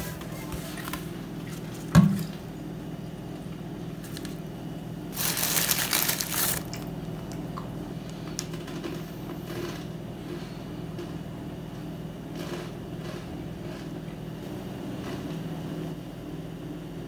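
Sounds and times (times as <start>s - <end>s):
steady low hum: 0.0s - 17.0s
plastic bag crinkling: 5.1s - 7.0s.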